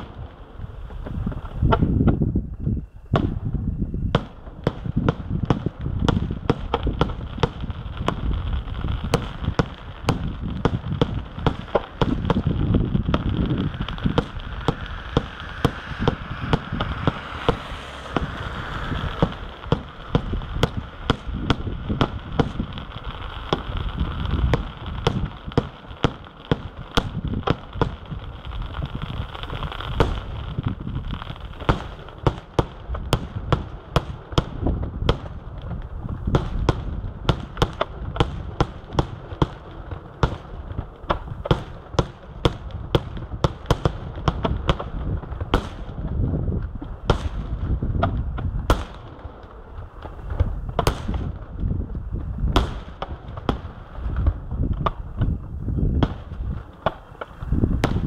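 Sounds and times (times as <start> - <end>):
continuous low rumble: 0.0 - 58.0
firework shells bursting: 9.0 - 28.2.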